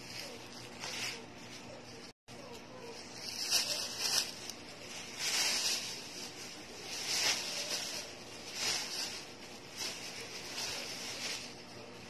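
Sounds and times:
plastic bag crinkling: 0:02.4 - 0:12.0.

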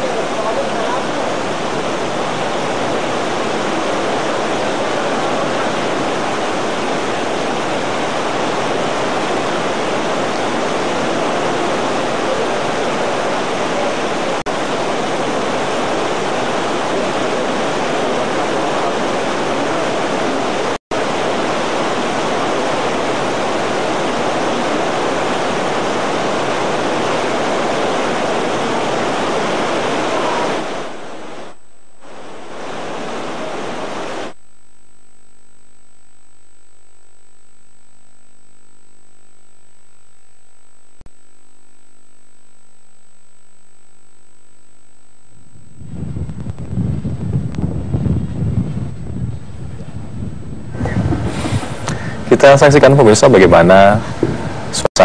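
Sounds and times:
heavy torrential rain: 0:00.0 - 0:34.4, 0:50.7 - 0:55.0.

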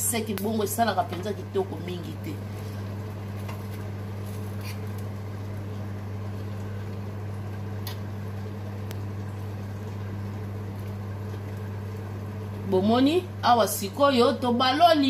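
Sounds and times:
oven humming: 0:00.0 - 0:15.0.

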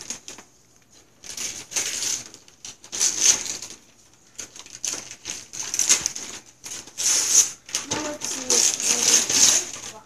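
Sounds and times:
wrapping paper tearing: 0:00.0 - 0:10.0.

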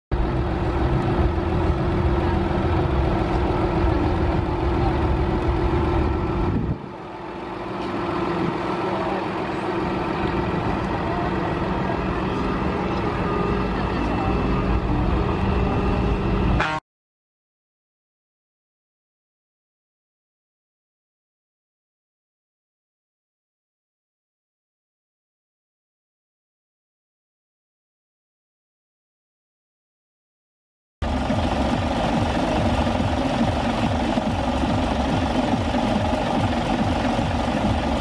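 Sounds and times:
truck diesel engine idling: 0:00.1 - 0:16.6, 0:31.0 - 0:38.0
crowd chatter: 0:00.2 - 0:16.6.

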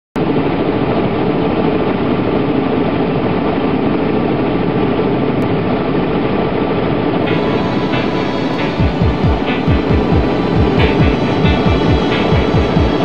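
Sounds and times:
helicopter engine and rotor noise: 0:05.5 - 0:13.0.

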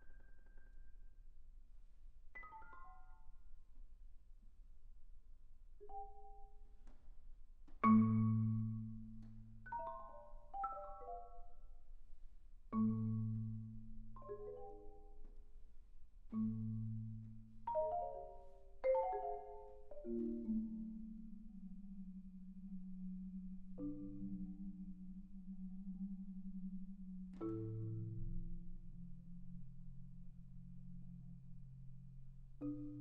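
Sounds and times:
marimba played with mallets: 0:07.8 - 0:11.6, 0:16.3 - 0:21.5.

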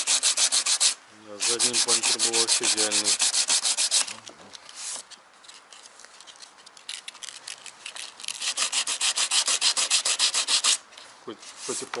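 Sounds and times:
sandpaper sanding plastic bumper: 0:00.0 - 0:04.1, 0:08.3 - 0:10.8.

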